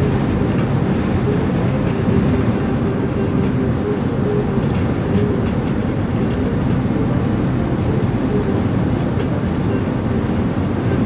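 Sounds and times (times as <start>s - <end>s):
car road and engine noise: 0.0s - 11.0s.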